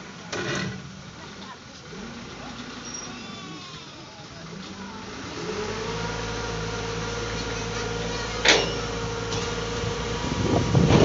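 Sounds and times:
truck engine hum: 0:00.0 - 0:11.0
hydraulic pump whine: 0:05.0 - 0:11.0
metallic clank: 0:08.4 - 0:09.6.

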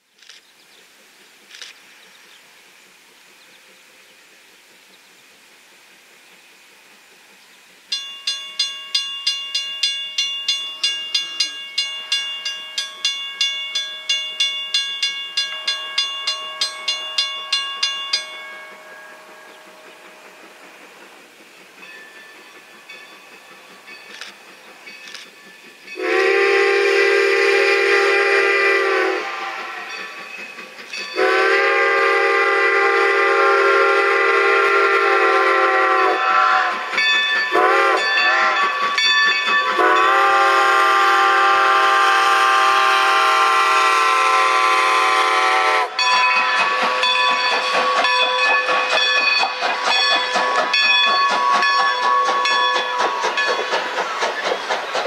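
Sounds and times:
train coaches clicking over rails: 0:00.2 - 0:55.0
steam whistle blasts: 0:26.0 - 0:30.0, 0:31.2 - 0:36.9, 0:37.5 - 0:38.7, 0:39.8 - 0:46.6.

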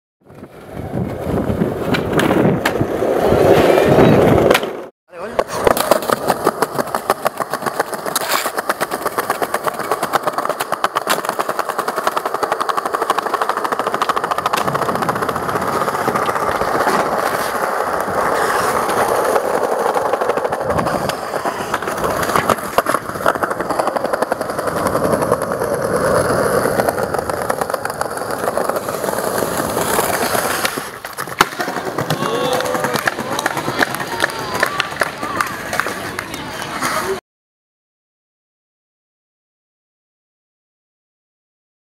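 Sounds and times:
skateboard wheels rattling on paving: 0:00.3 - 0:37.2
skateboard knocks: 0:26.7 - 0:36.9.

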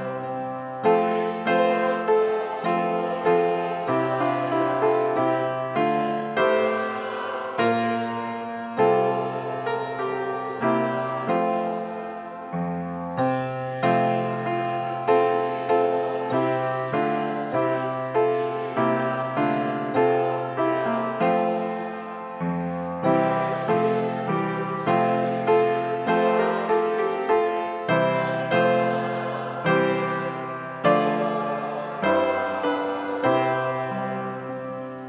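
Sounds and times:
piano playing slow chords: 0:00.0 - 0:35.0.

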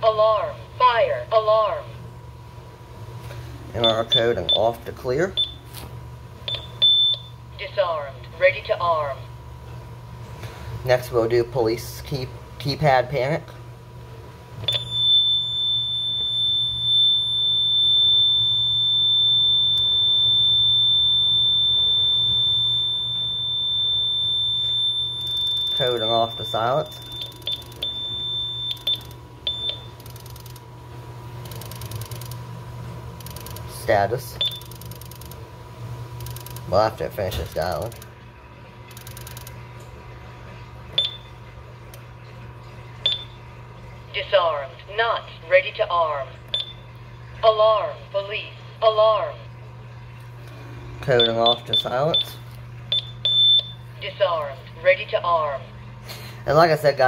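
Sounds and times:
low steady hum: 0:00.0 - 0:57.0
keypad beeps: 0:06.5 - 0:07.3, 0:14.7 - 0:18.2, 0:22.3 - 0:30.6, 0:34.4 - 0:35.3, 0:41.0 - 0:41.3, 0:43.0 - 0:43.4, 0:46.5 - 0:46.8, 0:51.2 - 0:53.8
high-pitched alarm tone: 0:14.7 - 0:30.2.

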